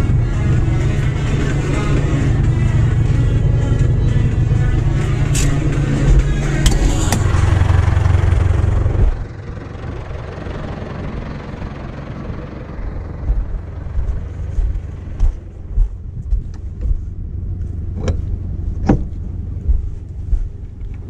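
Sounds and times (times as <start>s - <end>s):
tractor engine rumble: 0.0s - 21.0s
trailer knocks: 13.2s - 17.0s.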